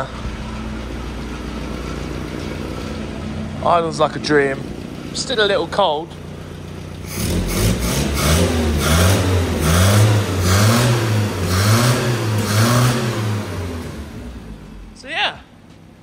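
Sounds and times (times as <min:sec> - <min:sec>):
car engine idling and revving: 0:00.0 - 0:16.0.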